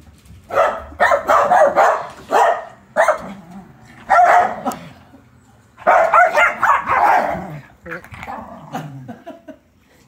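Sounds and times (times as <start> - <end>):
small dog barking: 0.5 - 3.4, 4.0 - 4.8, 5.8 - 7.6.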